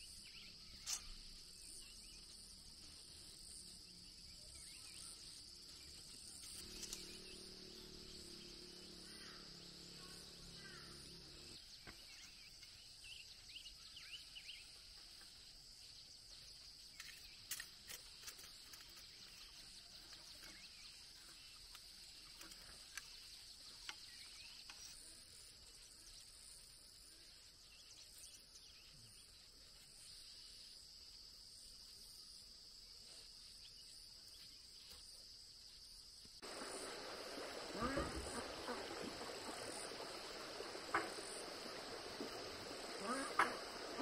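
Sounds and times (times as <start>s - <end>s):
high-pitched insect chorus: 0.0s - 44.0s.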